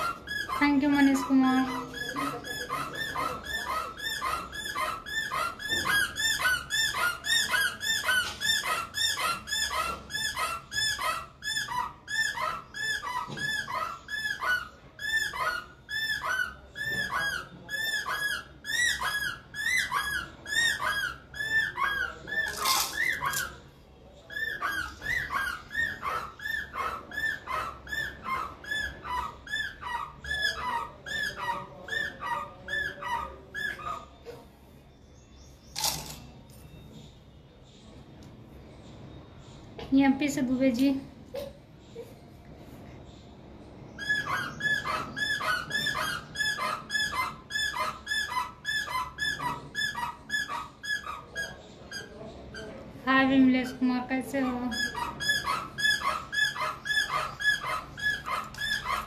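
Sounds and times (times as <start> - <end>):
squeaky toy squeaking: 0.0 - 23.6, 44.0 - 52.7, 54.4 - 59.0.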